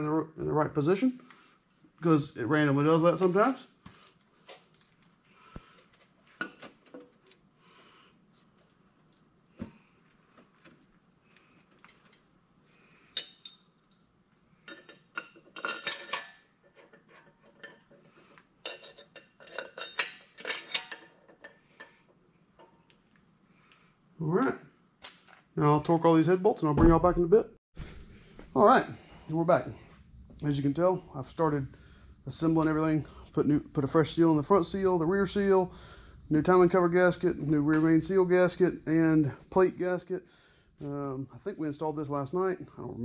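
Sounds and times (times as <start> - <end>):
metal clinking and clatter: 13.2 - 21.9.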